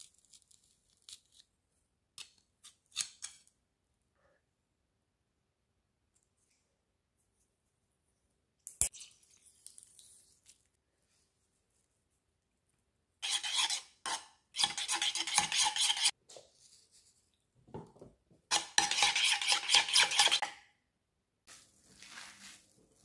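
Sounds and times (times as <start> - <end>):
metal spoon stirring in bowl: 13.2 - 16.2, 18.5 - 20.5.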